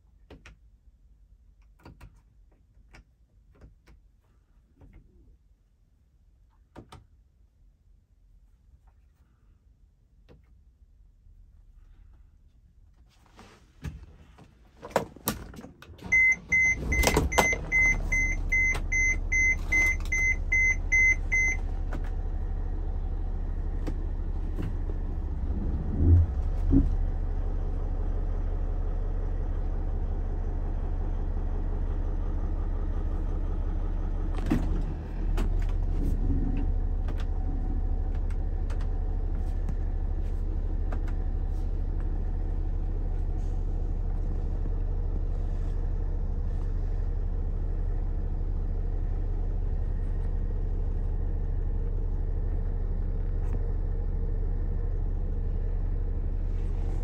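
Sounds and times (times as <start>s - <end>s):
diesel engine starting and idling: 15.6s - 57.0s
dashboard warning chime beeping: 16.0s - 21.7s.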